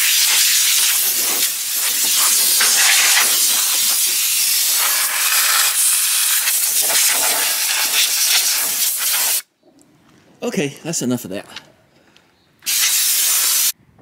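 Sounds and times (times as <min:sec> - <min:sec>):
compressed air blow gun hissing: 0:00.0 - 0:09.5, 0:12.6 - 0:13.8.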